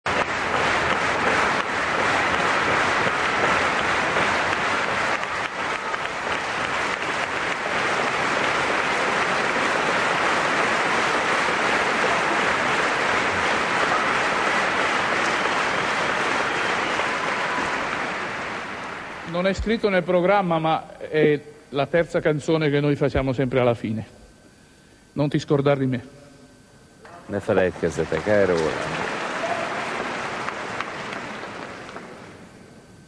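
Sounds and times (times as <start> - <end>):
audience applauding: 0.0 - 20.2, 27.2 - 32.5.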